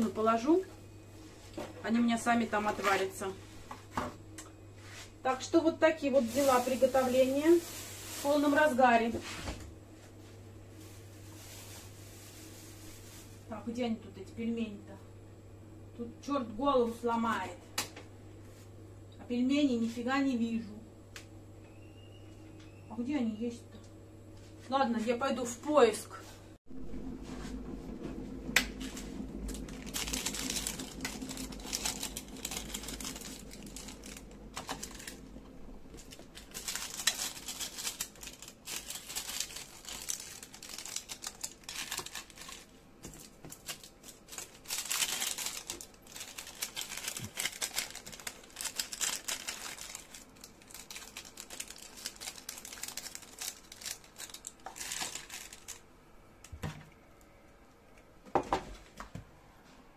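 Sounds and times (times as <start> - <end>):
plastic packets rustling: 6.0 - 9.1, 10.8 - 13.5, 28.9 - 55.9
low hum: 9.5 - 58.2.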